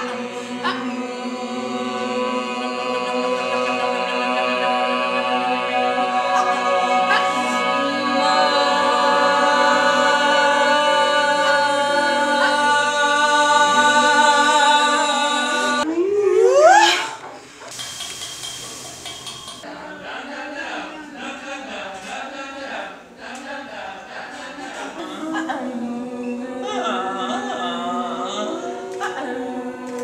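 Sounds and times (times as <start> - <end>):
choir singing sustained chord: 0.0 - 15.9, 24.8 - 30.0
voice sweeping upward in pitch: 15.8 - 17.2.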